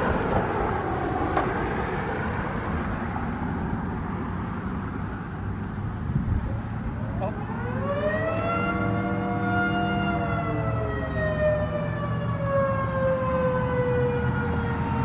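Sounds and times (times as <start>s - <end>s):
warning siren winding down: 7.1s - 15.0s.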